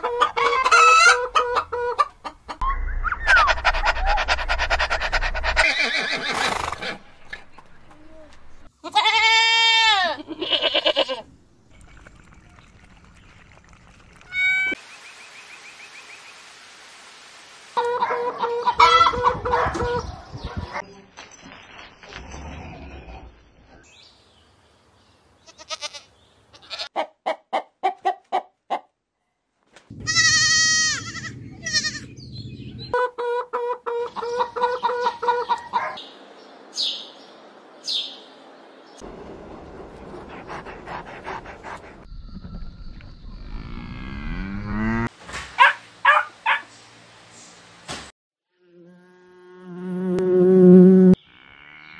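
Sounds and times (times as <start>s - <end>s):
chickens clucking: 0.0s - 5.8s, 17.8s - 20.8s, 27.0s - 28.9s, 32.8s - 36.0s
goats bleating: 8.8s - 11.2s, 25.5s - 26.9s, 30.0s - 32.1s
young goat long bleat: 8.8s - 11.2s, 25.4s - 26.9s, 30.0s - 32.1s.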